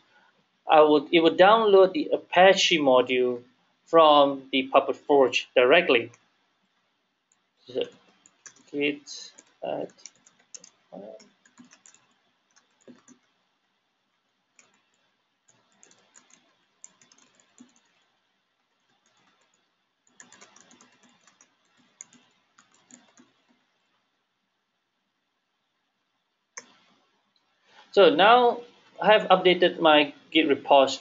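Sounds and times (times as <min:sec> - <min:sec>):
typing on computer keyboard: 0:07.3 - 0:13.4, 0:14.6 - 0:18.1, 0:18.8 - 0:23.7, 0:26.6 - 0:27.0.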